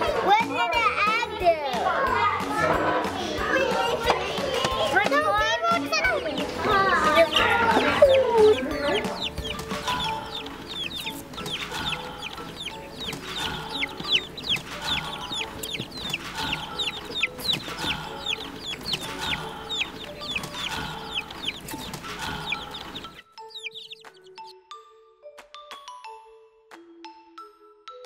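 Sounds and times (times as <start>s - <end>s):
background music: 0.0s - 28.0s
chicks peeping: 3.6s - 24.5s.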